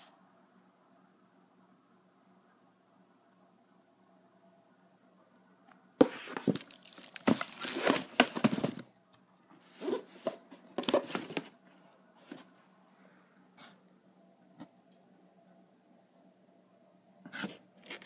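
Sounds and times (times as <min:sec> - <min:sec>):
cardboard box rustling and scraping: 0:06.0 - 0:08.8.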